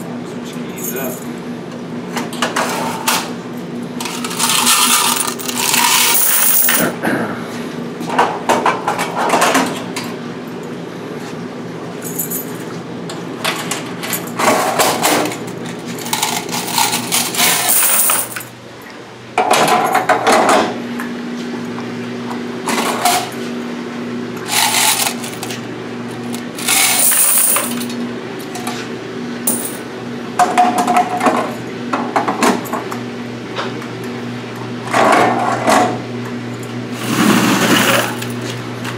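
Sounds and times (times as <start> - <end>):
coins clattering into metal bucket: 4.0 - 6.9, 16.0 - 18.4, 24.5 - 25.6, 26.6 - 27.9, 29.5 - 29.8.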